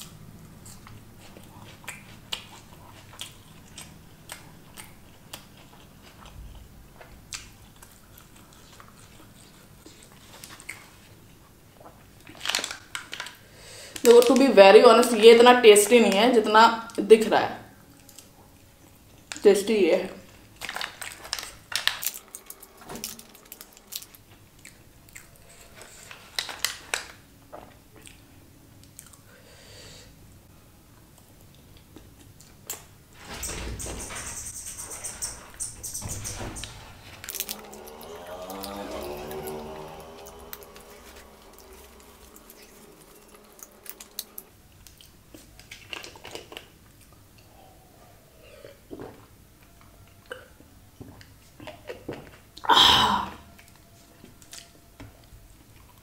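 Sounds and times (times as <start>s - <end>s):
chewing with sticky mouth clicks: 0.0s - 11.1s.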